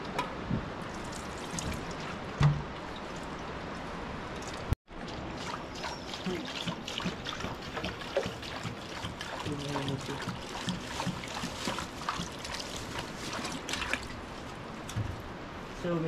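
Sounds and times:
water pouring into metal pots: 0:05.3 - 0:13.0.

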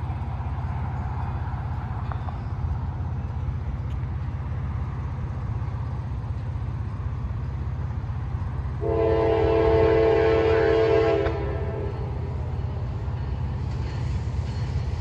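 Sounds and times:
locomotive air horn: 0:08.8 - 0:12.3.

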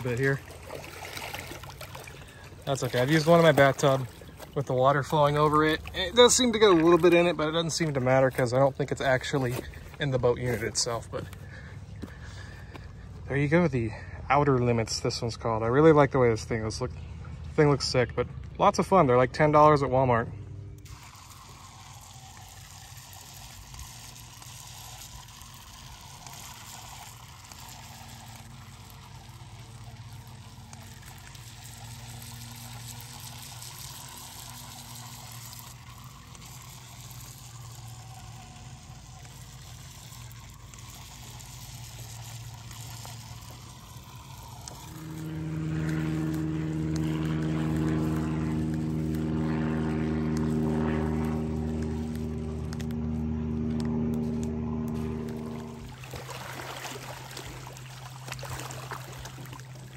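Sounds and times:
small electric motor whirring: 0:00.0 - 0:12.2, 0:20.6 - 0:59.9
loud multi-pitched hum: 0:00.0 - 0:59.9
water noise: 0:00.0 - 0:59.9.

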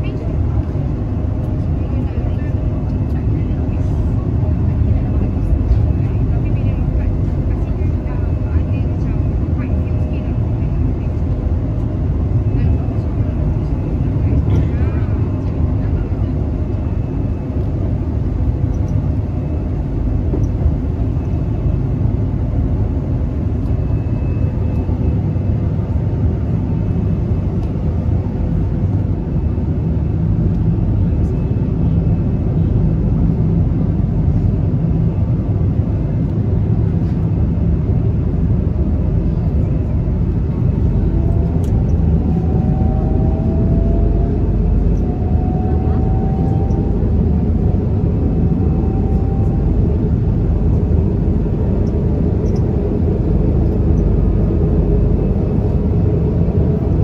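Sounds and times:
rising whine: 0:39.6 - 0:57.0.

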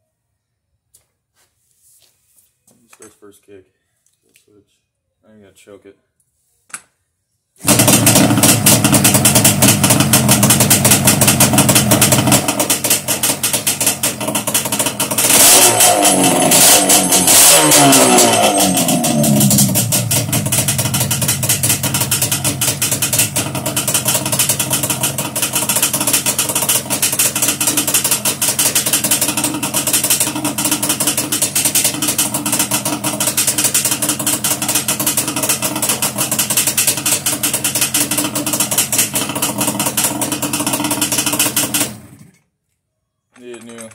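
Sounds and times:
two-stroke engine idling: 0:07.6 - 0:42.3.

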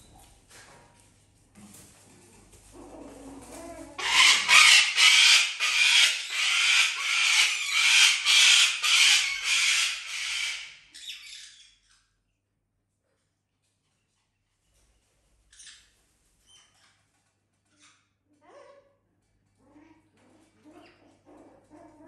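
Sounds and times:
cockatoo screeching: 0:04.0 - 0:11.6.

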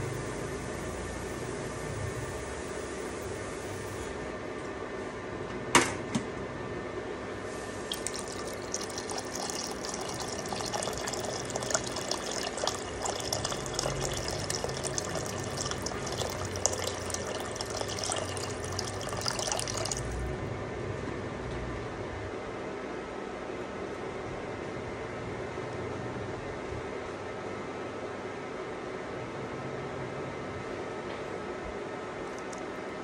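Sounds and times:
water pouring into a pot: 0:07.7 - 0:20.3.

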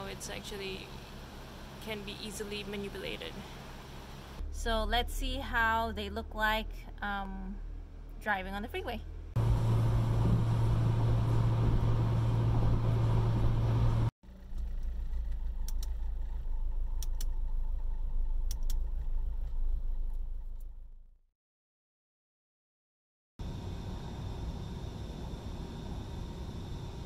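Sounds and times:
road noise: 0:00.0 - 0:06.1, 0:06.9 - 0:20.9
car engine hum: 0:00.0 - 0:06.6, 0:09.0 - 0:21.0
sharp clicks: 0:17.0 - 0:17.4, 0:18.5 - 0:18.8.

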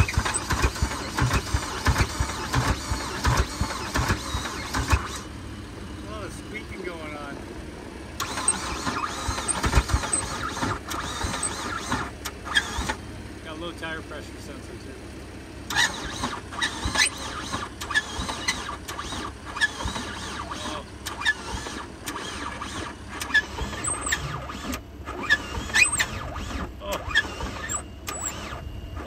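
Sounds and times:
sharp engine clicks: 0:00.0 - 0:05.3, 0:08.2 - 0:13.9, 0:15.6 - 0:29.0
high squeals from engine: 0:00.0 - 0:07.2, 0:08.2 - 0:13.0, 0:15.7 - 0:29.0
car engine rumbling: 0:00.0 - 0:29.0.

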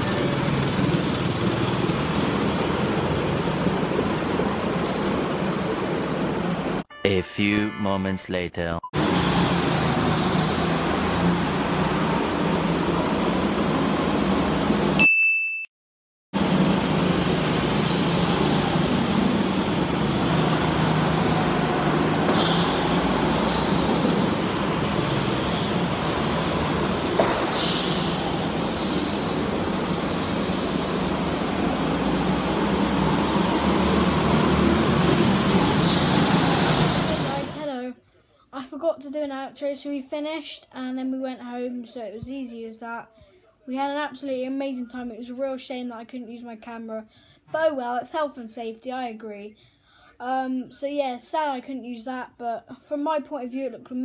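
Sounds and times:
go-kart engines droning: 0:00.0 - 0:06.8, 0:16.4 - 0:37.6.

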